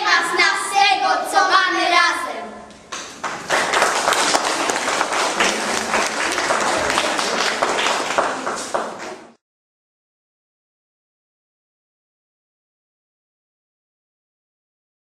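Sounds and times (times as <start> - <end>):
audience applauding: 2.9 - 9.4.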